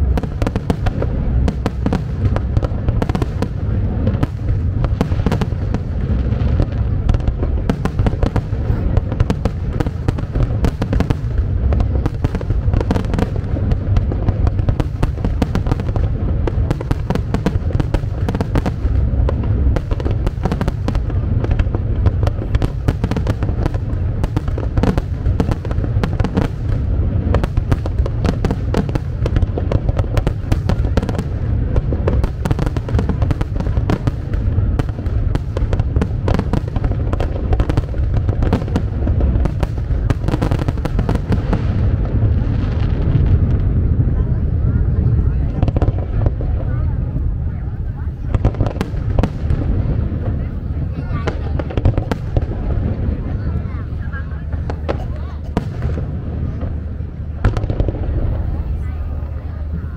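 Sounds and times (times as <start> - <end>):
deep rumble: 0.0 - 59.9.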